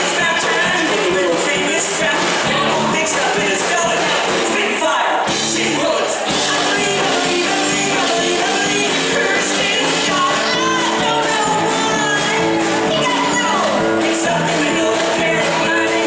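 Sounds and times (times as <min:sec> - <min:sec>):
live band playing: 0:00.0 - 0:16.0
steady drum beat: 0:00.0 - 0:16.0
woman singing: 0:06.3 - 0:16.0.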